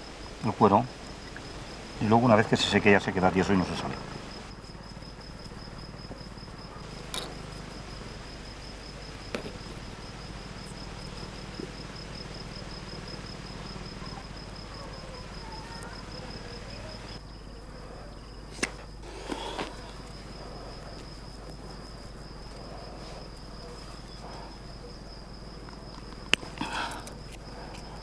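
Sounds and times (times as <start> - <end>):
cricket chirping: 0.0 - 28.0.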